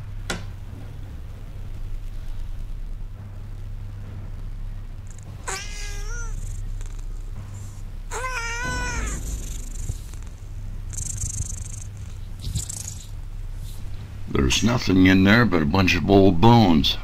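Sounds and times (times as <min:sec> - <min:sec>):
steady low hum: 0:00.0 - 0:17.0
cat meowing: 0:05.1 - 0:06.6, 0:08.1 - 0:10.3.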